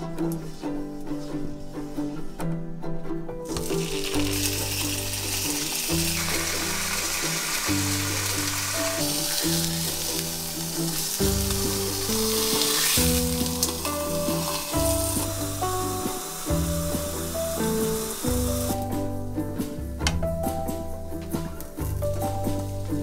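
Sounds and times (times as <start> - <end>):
background music with bass line: 0.0 - 23.0
sausage sizzling in oil: 3.5 - 19.0.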